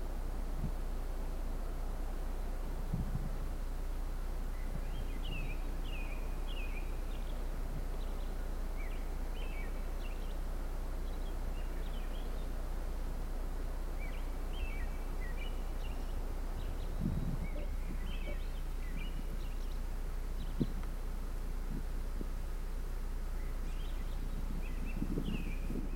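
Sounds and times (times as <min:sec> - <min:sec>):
low background noise: 0:00.0 - 0:25.9
small birds chirping: 0:00.0 - 0:25.9.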